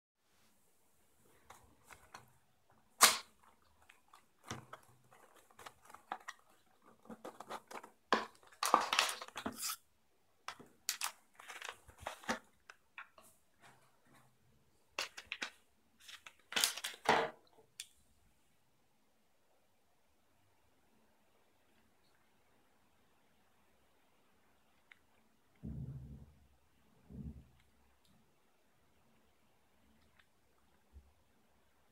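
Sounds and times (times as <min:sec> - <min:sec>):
cardboard rustling and scraping: 0:03.8 - 0:09.8, 0:10.5 - 0:12.6.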